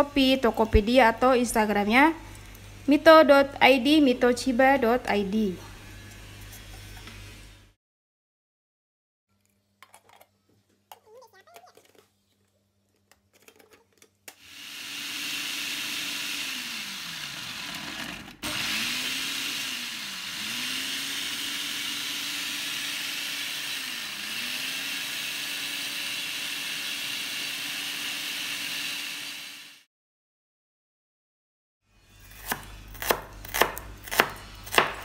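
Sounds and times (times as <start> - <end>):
food processor motor whirring: 14.3 - 29.9.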